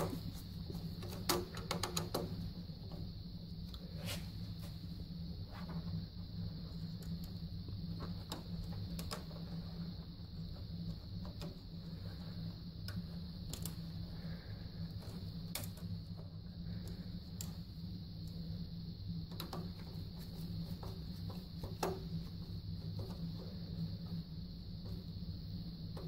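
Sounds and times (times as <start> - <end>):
fingers clicking and tapping wires: 0.0 - 2.5, 12.8 - 13.9, 15.0 - 15.9
steady low hum: 0.0 - 26.0.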